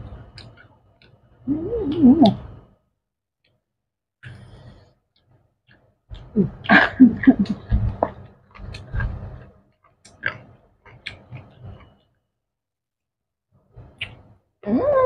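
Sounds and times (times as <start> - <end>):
person murmuring while eating: 1.5 - 2.5, 6.2 - 8.0.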